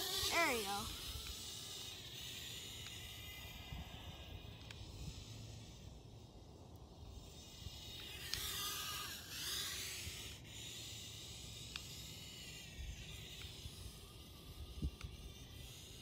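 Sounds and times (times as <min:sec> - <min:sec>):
drone propeller whine: 0:00.0 - 0:16.0.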